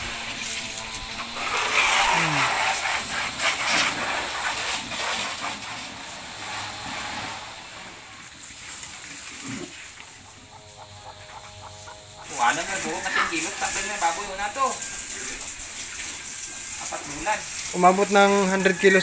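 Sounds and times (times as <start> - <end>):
pig grunts: 0.0 - 4.2
water splashing and pouring: 12.3 - 19.0.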